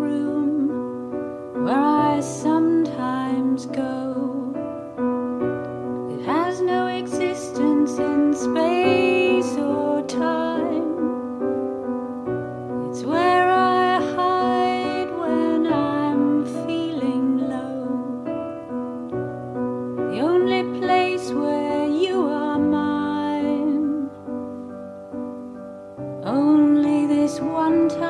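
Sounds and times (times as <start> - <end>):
person singing: 0.0 - 1.0, 1.6 - 4.8, 6.0 - 11.4, 12.7 - 18.5, 20.0 - 24.4, 26.2 - 28.0
piano: 0.0 - 28.0.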